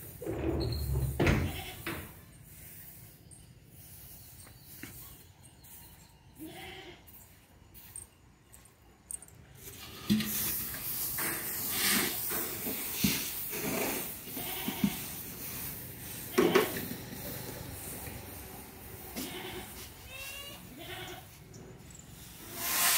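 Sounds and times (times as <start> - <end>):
goats bleating: 19.2 - 21.4.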